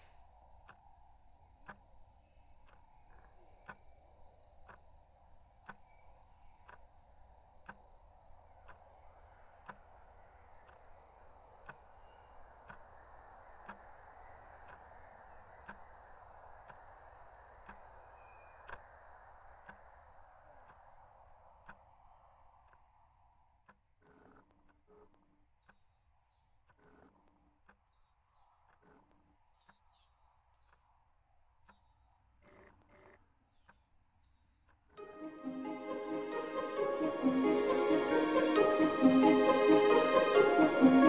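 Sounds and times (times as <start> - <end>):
thin steady high tone: 33.5 - 41.0.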